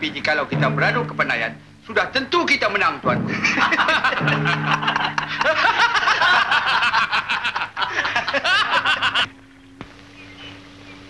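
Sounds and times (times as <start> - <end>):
men laughing: 3.2 - 9.4.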